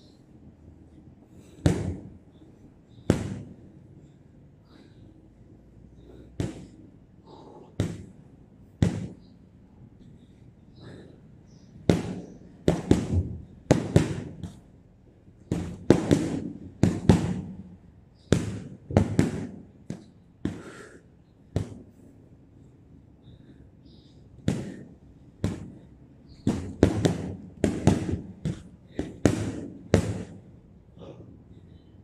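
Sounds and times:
gloves punching heavy bag: 0:03.1 - 0:03.5, 0:06.4 - 0:08.1, 0:08.8 - 0:09.2, 0:11.9 - 0:14.6, 0:15.5 - 0:17.6, 0:18.3 - 0:20.9, 0:24.5 - 0:25.8, 0:26.4 - 0:30.4.

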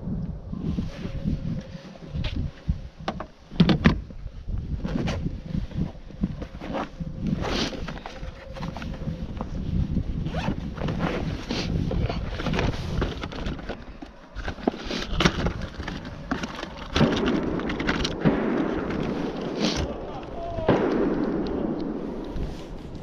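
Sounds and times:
box handling rustling and scraping: 0:04.8 - 0:20.0.

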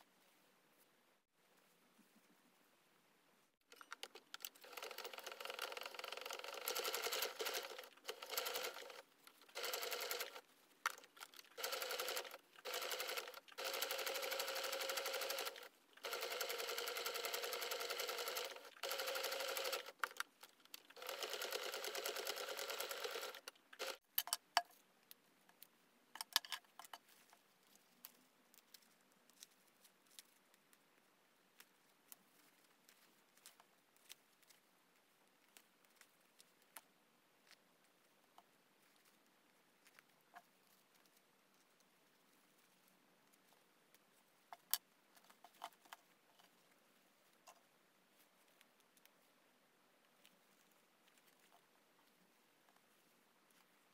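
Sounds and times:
sewing machine stitching: 0:04.4 - 0:10.4, 0:11.2 - 0:20.2, 0:20.9 - 0:24.0.

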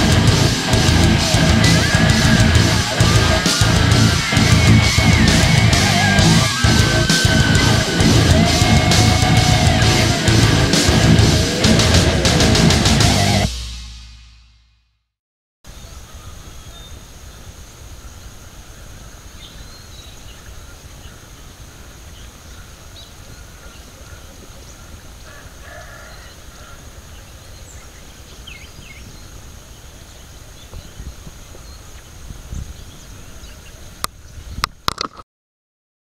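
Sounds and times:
bird calls: 0:15.7 - 0:34.8
wind rumbling on microphone: 0:24.4 - 0:35.0.

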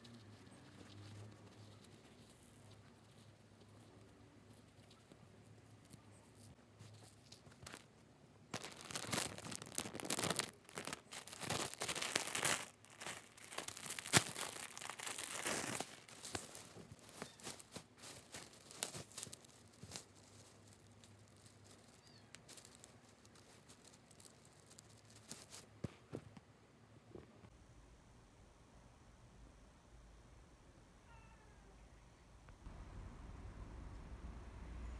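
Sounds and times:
material crinkling and rustling: 0:05.9 - 0:26.4.

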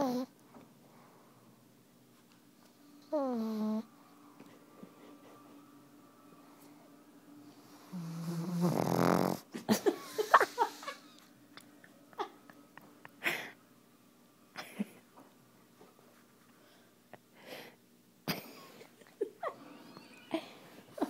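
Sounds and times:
puppy snoring: 0:00.0 - 0:00.3, 0:03.1 - 0:03.9, 0:07.6 - 0:09.6
soft breaths: 0:00.5 - 0:05.5, 0:16.0 - 0:17.9.

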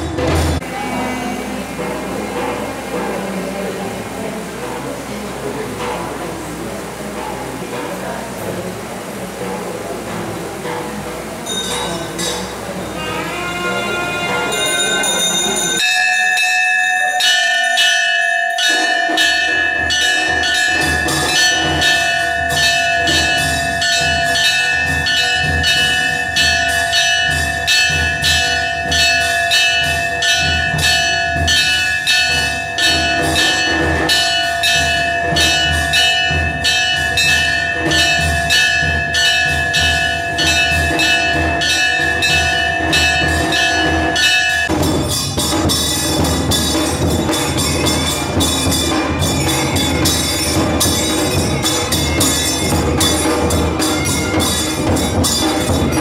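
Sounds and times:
drumming: 0:00.0 - 0:56.0
temple bells ringing rapidly: 0:00.0 - 0:56.0.

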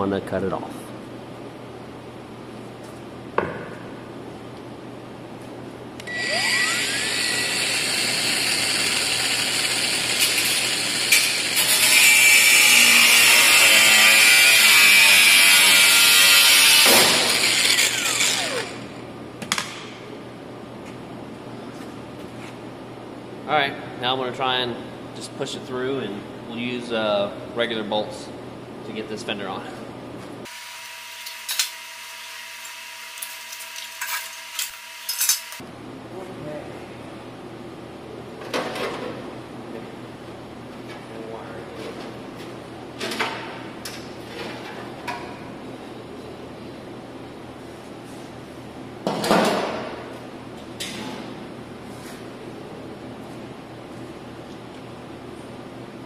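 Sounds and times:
angle grinder cutting bolt: 0:06.0 - 0:19.0, 0:30.8 - 0:35.6.

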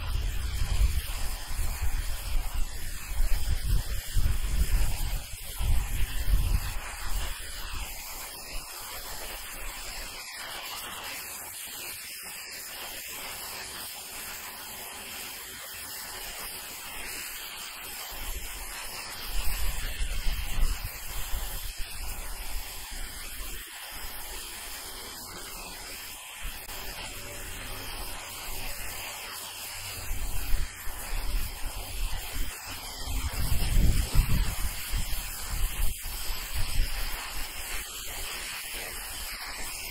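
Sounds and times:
wind rumble on microphone: 0:00.0 - 0:08.0, 0:19.4 - 0:23.3, 0:30.0 - 0:37.8
pressure washer jet hissing: 0:00.0 - 0:39.9.

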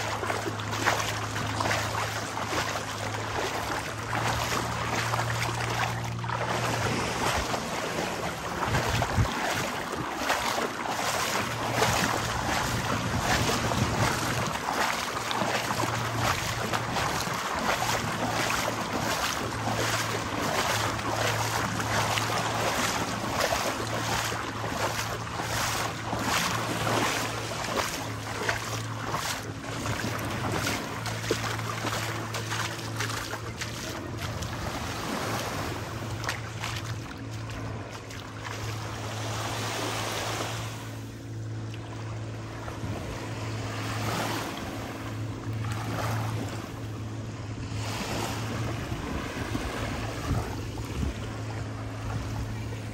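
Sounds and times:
boat engine droning: 0:00.0 - 0:52.9
waves rushing: 0:00.0 - 0:52.9
wind on microphone: 0:06.1 - 0:37.9, 0:47.4 - 0:52.9.

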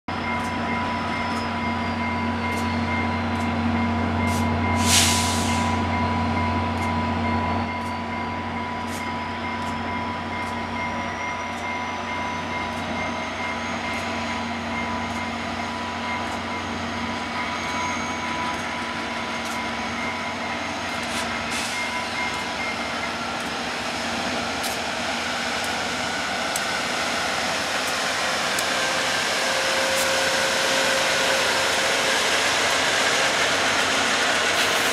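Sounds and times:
diesel locomotive humming and whining: 0:00.1 - 0:34.9
sharp air hiss: 0:04.8 - 0:05.8, 0:34.5 - 0:34.9.

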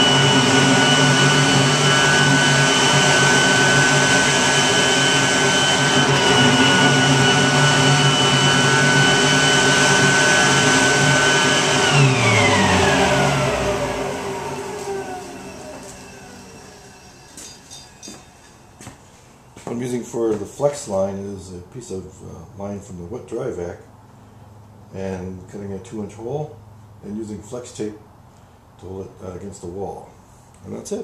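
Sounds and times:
electric leaf blower whine: 0:00.0 - 0:19.1.

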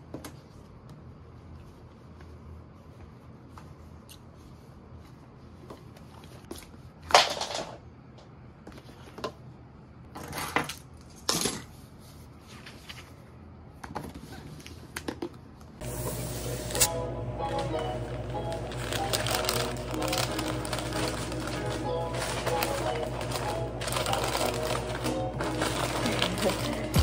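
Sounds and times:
background music: 0:16.5 - 0:27.0.

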